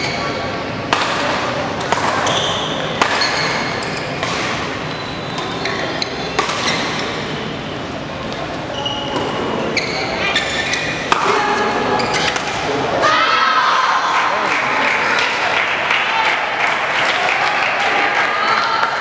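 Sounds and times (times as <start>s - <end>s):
sports hall background noise: 0.0s - 19.0s
racquets hitting shuttlecock: 0.9s - 7.3s, 11.0s - 12.7s
shoes squeaking on court: 2.2s - 7.3s, 8.3s - 12.4s.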